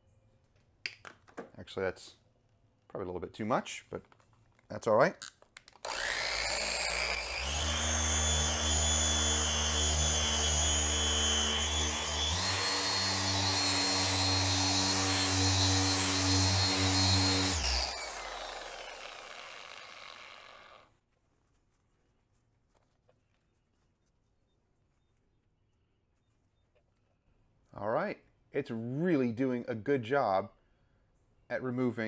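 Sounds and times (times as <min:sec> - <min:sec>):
car polisher running: 0:05.9 - 0:20.8.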